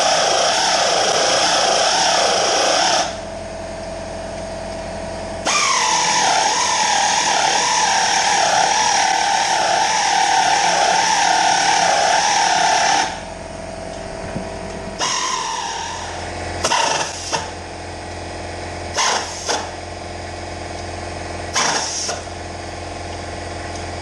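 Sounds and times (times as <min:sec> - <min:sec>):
pneumatic air ratchet whirring: 0:00.0 - 0:03.3, 0:05.4 - 0:13.4, 0:15.0 - 0:17.7, 0:18.9 - 0:19.8, 0:21.5 - 0:22.4
steady machine hum: 0:00.0 - 0:24.0.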